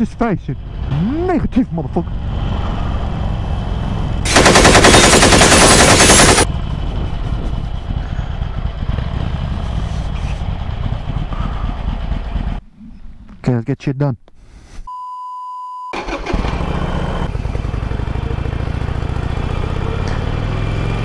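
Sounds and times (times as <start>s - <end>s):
motorcycle engine running: 0.0s - 12.6s, 16.3s - 21.0s
wind rush: 6.5s - 8.8s
rapid exhaust pulses: 7.2s - 12.8s.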